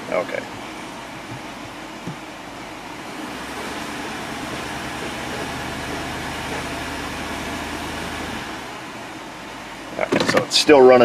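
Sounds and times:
car engine idling rough: 3.0s - 10.0s.

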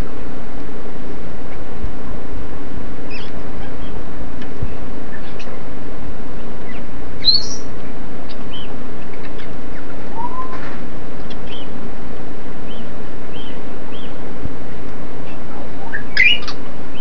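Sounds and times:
parrots chirping and whistling: 3.1s - 3.9s, 6.6s - 7.7s, 10.1s - 10.8s, 11.4s - 11.7s, 15.2s - 17.0s.

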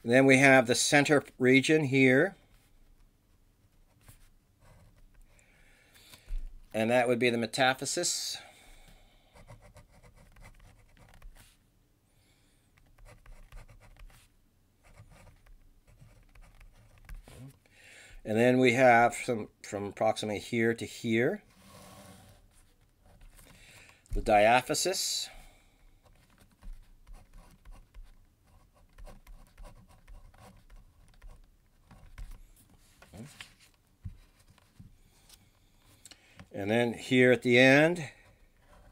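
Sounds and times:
pen scratching on paper: 9.3s - 11.5s, 12.9s - 17.4s, 26.5s - 32.4s, 38.6s - 38.9s.

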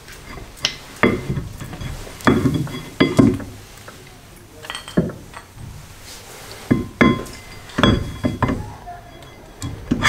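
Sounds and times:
metallic clinks and knocks: 0.1s - 3.6s, 4.6s - 5.6s, 6.7s - 10.0s.

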